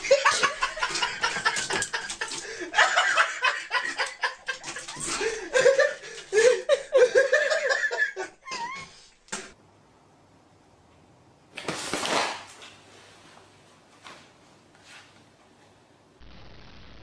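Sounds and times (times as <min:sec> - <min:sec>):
person laughing: 0:00.0 - 0:09.0.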